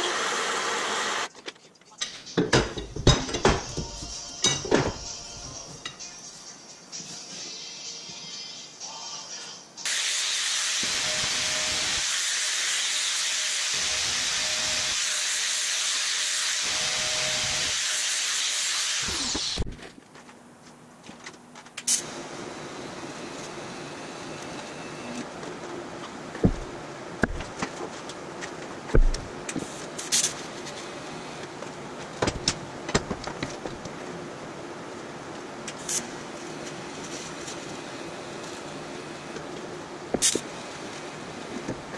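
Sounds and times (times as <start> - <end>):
welding hiss: 9.8 - 19.7.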